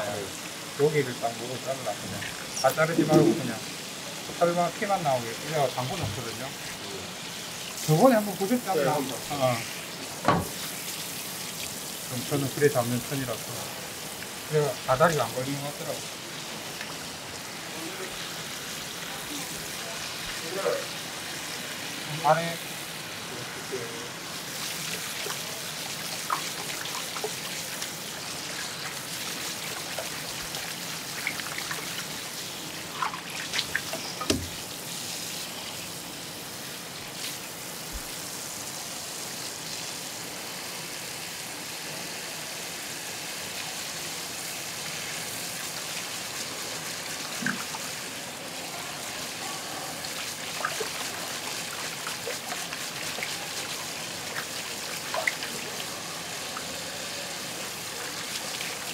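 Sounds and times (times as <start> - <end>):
tap water running into steel bowl: 1.8 - 6.6, 10.0 - 16.0, 24.5 - 32.4, 33.0 - 34.7, 47.2 - 48.0, 50.1 - 56.7.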